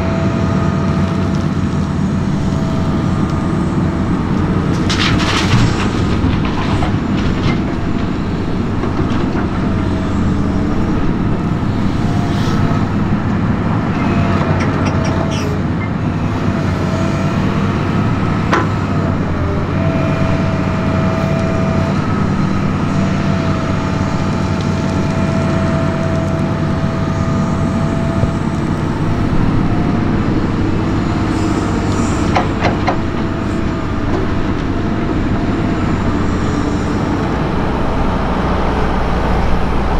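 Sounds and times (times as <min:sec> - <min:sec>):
excavator diesel engine under load: 0:00.0 - 0:39.9
tractor engine running: 0:00.0 - 0:39.9
soil dropping into steel trailer: 0:04.7 - 0:08.2.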